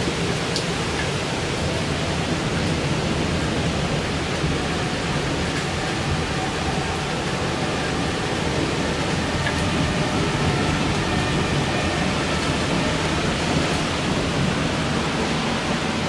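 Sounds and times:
gusting wind: 0.0s - 16.0s
heavy rain: 0.0s - 16.0s.

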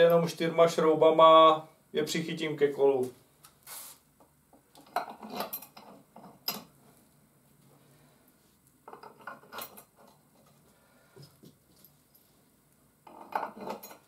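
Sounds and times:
metal bolts clinking: 8.9s - 10.1s, 13.1s - 14.0s.

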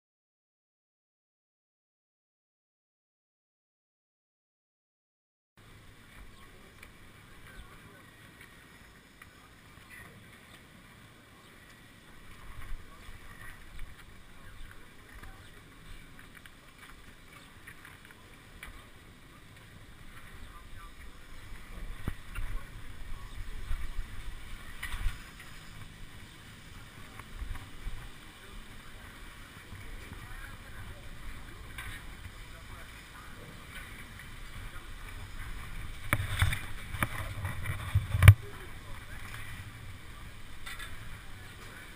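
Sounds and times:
faint voices: 5.6s - 41.9s
wind buffeting microphone: 19.6s - 41.9s.

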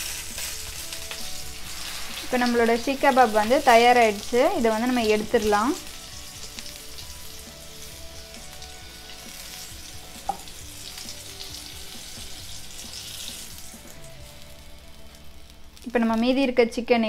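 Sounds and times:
kebabs sizzling in oil: 0.0s - 16.6s.

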